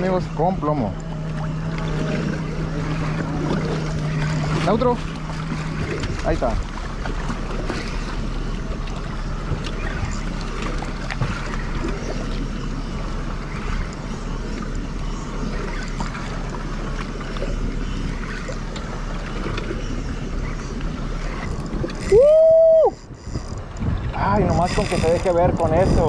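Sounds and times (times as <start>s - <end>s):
outboard motor idling: 0.0s - 26.0s
water washing against boat: 0.0s - 26.0s
wind on microphone: 20.9s - 26.0s.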